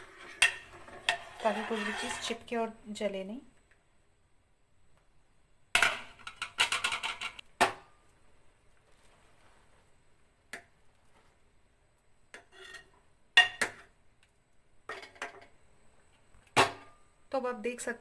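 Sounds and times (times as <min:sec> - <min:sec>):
metal ladle scraping a pot: 0:00.0 - 0:02.5, 0:12.3 - 0:13.9.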